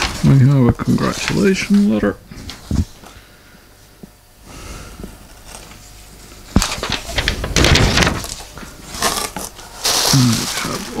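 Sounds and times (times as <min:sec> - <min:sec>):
paper rustling and crinkling: 0:00.0 - 0:03.1, 0:06.5 - 0:11.0.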